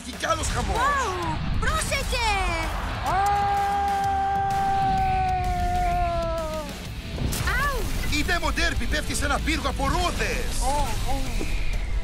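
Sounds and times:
background music: 0.0 - 12.0
long held yell: 3.1 - 6.8.

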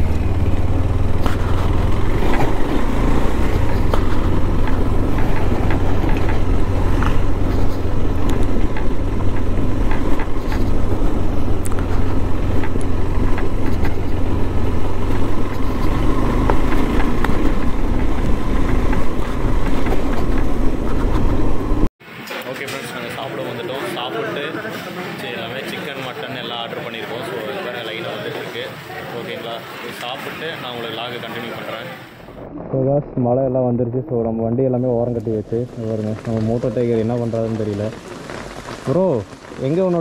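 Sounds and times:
motorcycle engine humming: 0.0 - 21.9
wind and road noise: 0.0 - 40.0.

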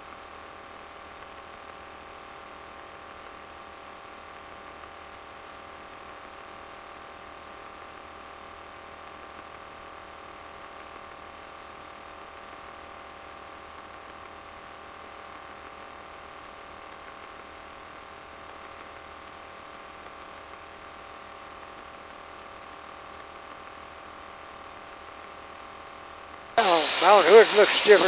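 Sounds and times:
light aircraft engine and propeller drone: 26.6 - 28.0.

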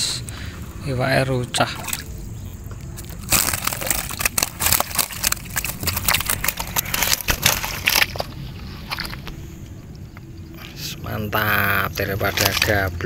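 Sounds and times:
water splashing and dripping: 1.6 - 10.0, 12.0 - 13.0
fish flapping against wooden boat: 3.0 - 9.4.

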